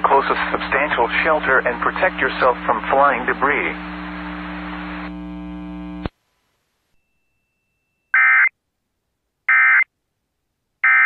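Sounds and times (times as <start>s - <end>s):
electrical hum: 0.0s - 6.2s.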